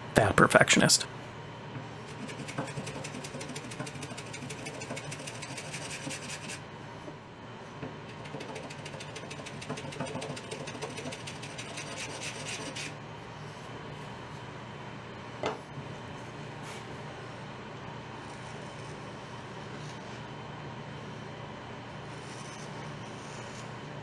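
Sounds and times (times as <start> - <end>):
block plane shaving wood: 2.1 - 6.6, 8.2 - 12.9.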